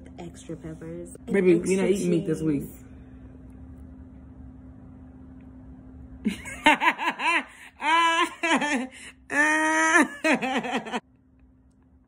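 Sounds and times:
woman giggling: 6.3 - 11.0.

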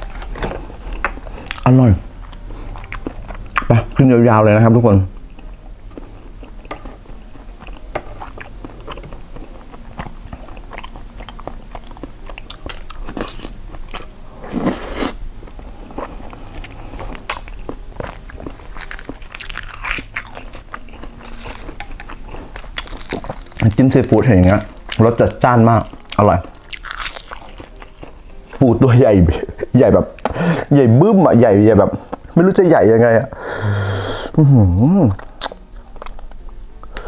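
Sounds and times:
mouth chewing clicks and smacks: 35.1 - 37.0.

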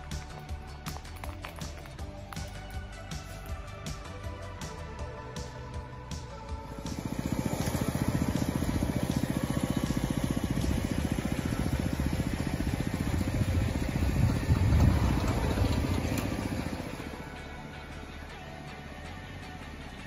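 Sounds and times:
small engine puttering: 6.2 - 20.0.

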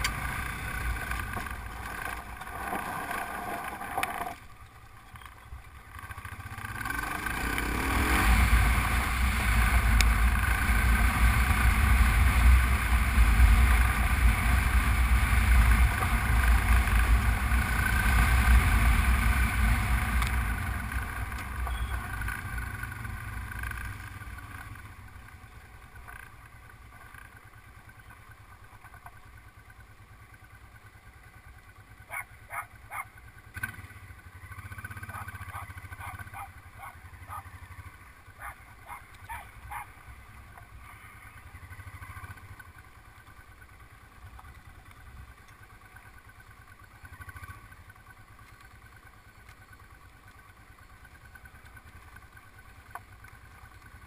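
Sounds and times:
motorcycle riding on gravel: 0.0 - 54.0
dog barking: 32.1 - 33.1, 35.1 - 37.5, 38.4 - 40.0.

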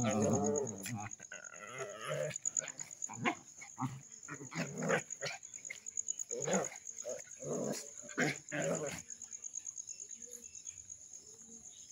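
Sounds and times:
dogs growling and barking: 0.0 - 9.2.

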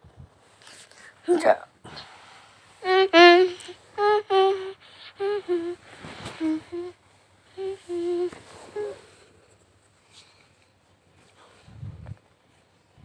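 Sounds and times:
person humming a tune: 2.8 - 9.2.

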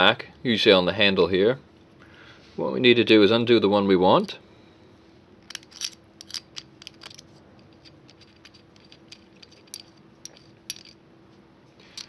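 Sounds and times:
faint steady hum: 0.0 - 12.0
metallic clicks and rattles of tools: 5.4 - 11.0, 11.8 - 12.0.

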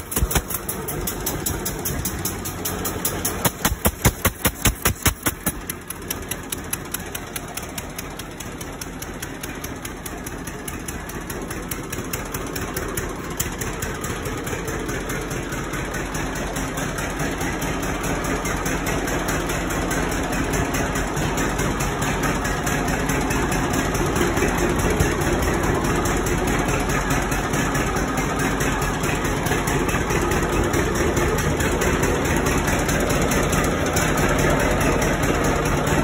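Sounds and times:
exhaust pops: 0.0 - 14.0
tractor engine running: 0.0 - 36.0.

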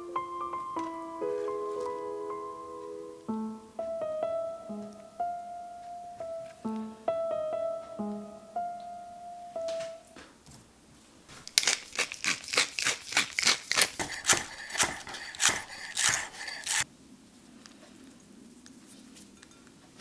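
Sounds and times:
pepper mill grinding: 11.3 - 16.8.

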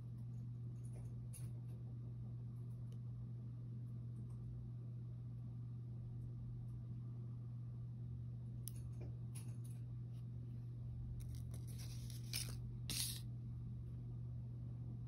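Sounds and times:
steady low hum: 0.0 - 15.0
cardboard tag rustling on table: 11.2 - 13.2.

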